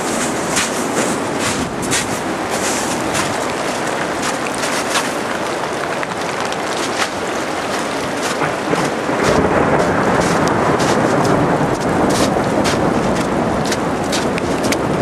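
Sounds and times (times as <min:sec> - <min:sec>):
sharp raindrop hits: 0:00.0 - 0:15.0
steady rain: 0:00.0 - 0:15.0
low thunder rumble: 0:07.9 - 0:15.0.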